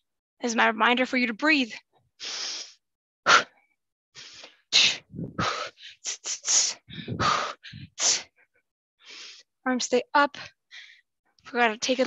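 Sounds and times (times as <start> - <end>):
sharp hissing exhalations: 2.2 - 3.5.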